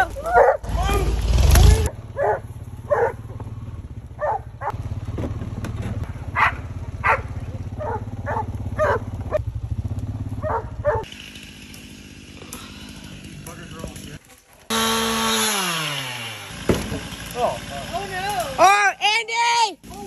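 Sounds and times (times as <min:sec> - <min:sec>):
tractor engine humming: 0:00.0 - 0:15.4
dog barking: 0:00.2 - 0:00.7, 0:02.2 - 0:03.3, 0:04.2 - 0:04.8, 0:06.3 - 0:09.4, 0:10.4 - 0:11.1.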